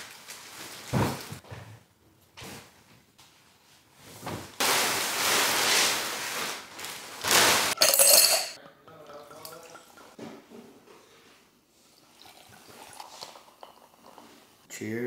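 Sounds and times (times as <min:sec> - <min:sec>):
mattress rustling: 0:02.4 - 0:07.8
ice clinking in glasses: 0:07.8 - 0:10.2, 0:12.1 - 0:14.4
wine glugging into glasses: 0:07.8 - 0:10.2, 0:12.0 - 0:14.4.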